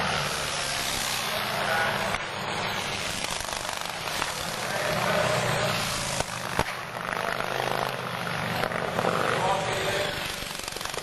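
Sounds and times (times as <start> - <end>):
racing motorcycles passing: 0.0 - 11.0
sharp crack: 6.0 - 6.8.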